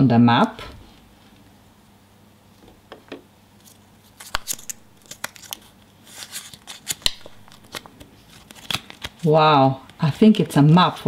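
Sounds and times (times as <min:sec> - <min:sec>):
stiff paper map crinkling: 0:03.6 - 0:09.3.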